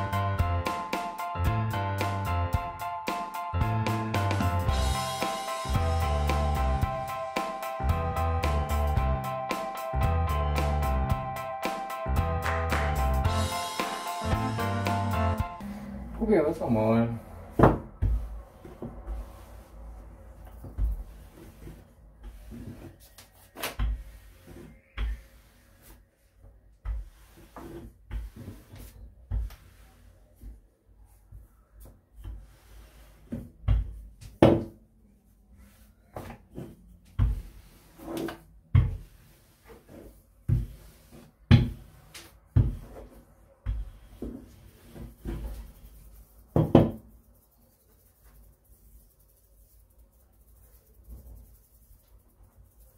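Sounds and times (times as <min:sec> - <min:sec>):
knocks and thumps: 0:17.5 - 0:19.1, 0:46.6 - 0:47.0
rolling pin on dough: 0:17.5 - 0:34.7, 0:35.5 - 0:52.9.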